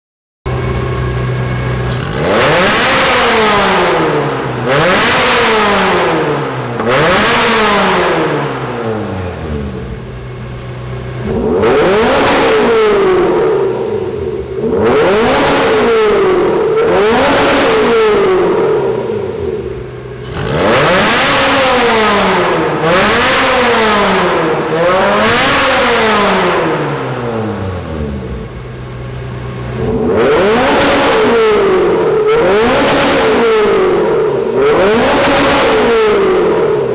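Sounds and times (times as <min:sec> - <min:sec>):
steady held engine note: 0:00.5 - 0:02.2
sports car engines revving: 0:00.5 - 0:36.9.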